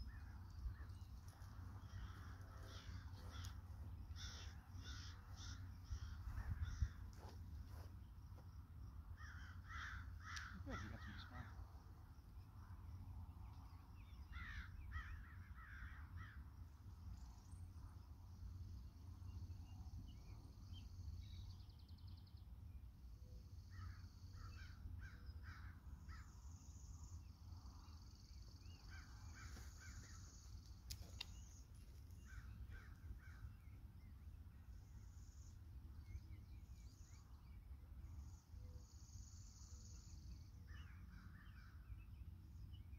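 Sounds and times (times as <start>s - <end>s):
steady low rumble: 0.0s - 9.1s
crows cawing: 1.8s - 7.0s, 9.2s - 11.6s, 14.3s - 16.4s, 23.7s - 26.3s, 28.9s - 30.2s, 32.2s - 33.5s.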